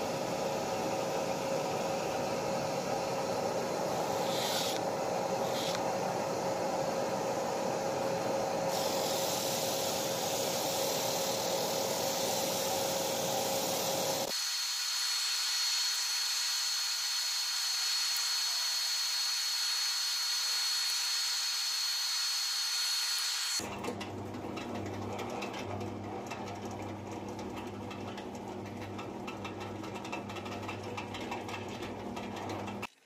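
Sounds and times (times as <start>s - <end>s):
drill press motor humming: 0.0s - 9.0s
disc sander whining: 2.1s - 6.8s, 12.7s - 23.6s.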